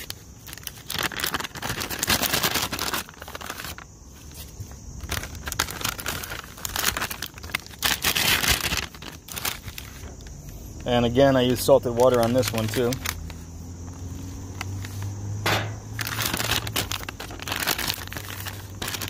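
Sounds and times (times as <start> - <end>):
plastic bag crinkling: 0.0 - 15.1, 15.9 - 19.0.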